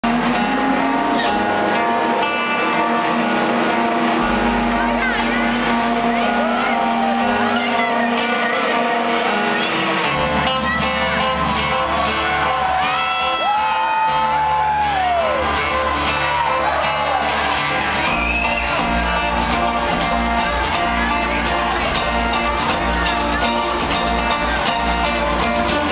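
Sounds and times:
bluegrass string band playing: 0:00.0 - 0:25.9
upright bass: 0:00.0 - 0:25.9
crowd whooping and shouting: 0:06.1 - 0:07.6, 0:10.8 - 0:22.0.

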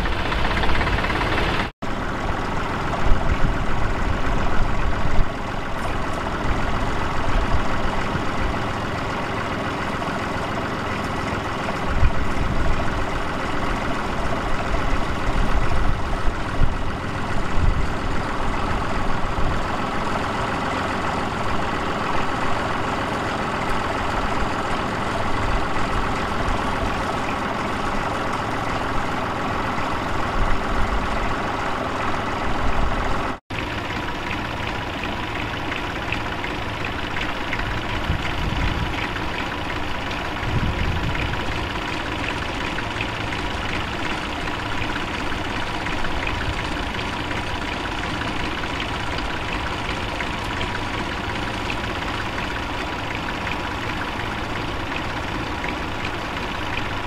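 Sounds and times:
tractor diesel engine idling: 0:00.0 - 0:57.0.

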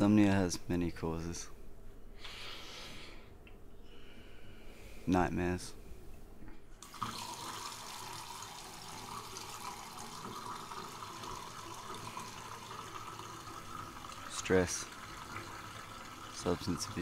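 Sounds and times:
water running into sink: 0:06.8 - 0:17.0.

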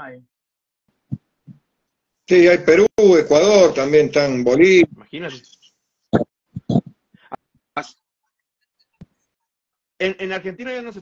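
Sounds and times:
man speaking: 0:02.3 - 0:05.7.

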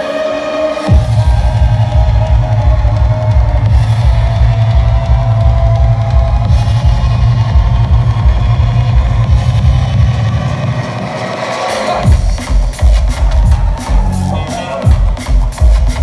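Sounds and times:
loud drum and bass music: 0:00.0 - 0:16.0.

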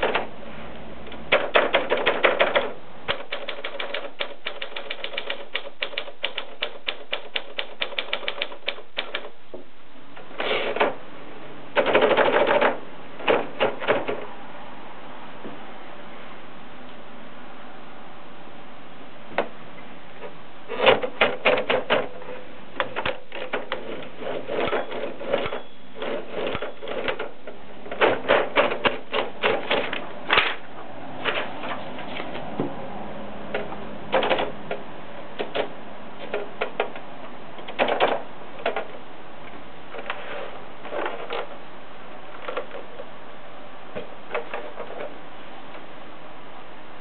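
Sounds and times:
typewriter clicking and clacking: 0:01.1 - 0:09.4, 0:11.8 - 0:14.2, 0:20.7 - 0:22.2, 0:22.8 - 0:30.5, 0:34.1 - 0:34.8, 0:37.6 - 0:38.9.

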